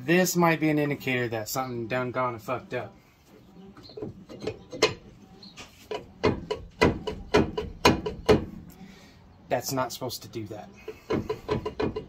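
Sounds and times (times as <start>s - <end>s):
sharp metal knocks: 5.9s - 8.6s, 10.9s - 12.0s.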